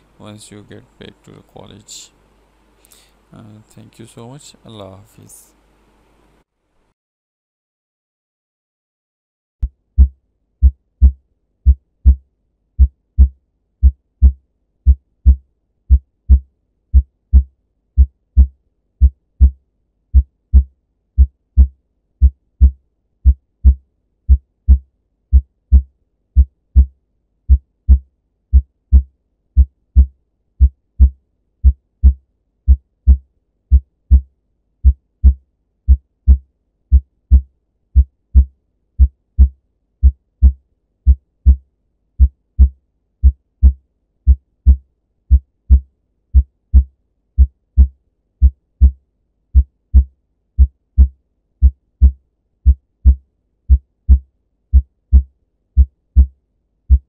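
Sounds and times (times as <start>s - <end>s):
heartbeat thumps: 10.0s - 12.2s, 12.8s - 26.9s, 27.5s - 41.6s, 42.2s - 49.0s, 49.6s - 56.3s.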